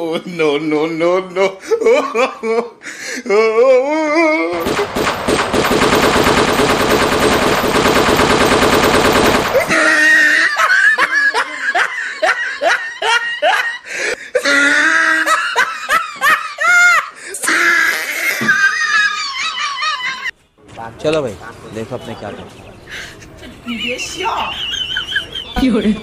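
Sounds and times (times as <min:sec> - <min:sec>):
automatic gunfire over loudspeaker: 0:04.6 - 0:09.7
high-pitched laughing: 0:09.5 - 0:13.8, 0:14.4 - 0:20.3, 0:23.2 - 0:26.0.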